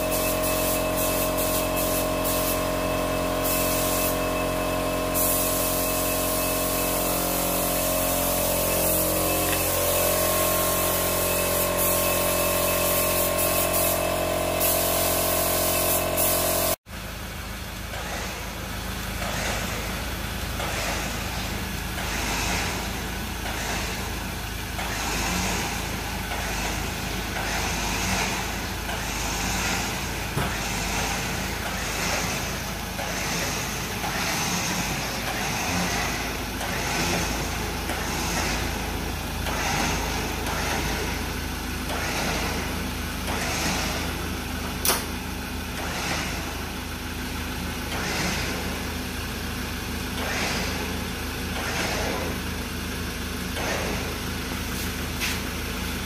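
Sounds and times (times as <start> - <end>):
air hose hiss bursts: 0.0 - 16.8
spray gun hissing: 0.0 - 16.8
motor hum: 0.0 - 56.0.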